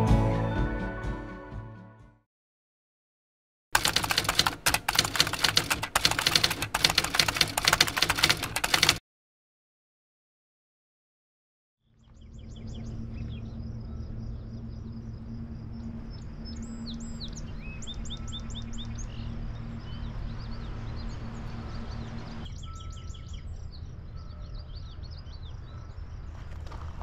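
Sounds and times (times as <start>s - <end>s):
songbirds chirping: 11.9s - 26.4s
low rumble of wind: 12.0s - 27.0s.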